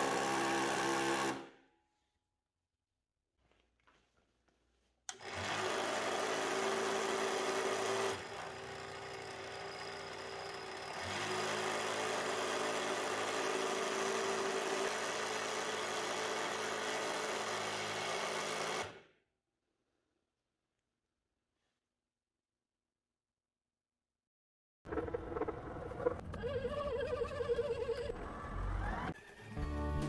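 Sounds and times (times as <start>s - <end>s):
scroll saw motor running: 0.0s - 1.5s, 5.1s - 19.0s.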